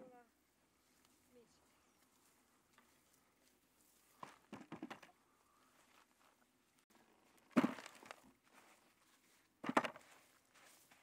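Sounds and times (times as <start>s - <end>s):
potatoes knocking into bucket: 7.5s - 8.2s
potatoes thudding into bucket: 7.5s - 8.2s.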